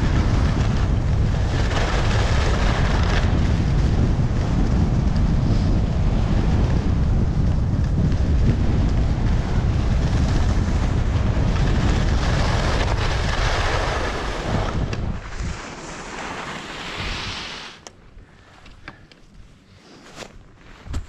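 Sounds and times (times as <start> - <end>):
wind buffeting microphone: 0.0 - 15.8
skis hissing over snow: 0.1 - 3.8, 5.4 - 6.6, 9.3 - 17.8.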